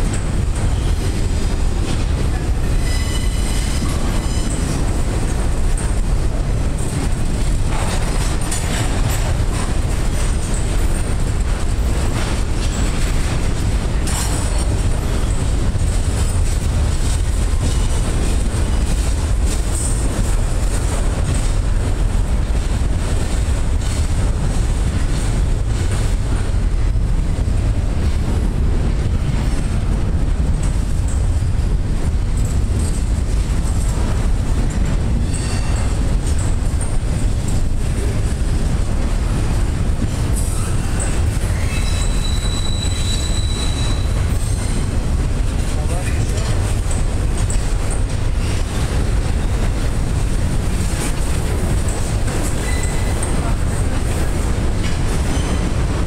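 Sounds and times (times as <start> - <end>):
train clunks: 0.0 - 56.0
train wheels rumbling on rails: 0.0 - 56.0
high-pitched wheel squeal: 2.8 - 4.6, 40.5 - 44.9, 52.6 - 53.1.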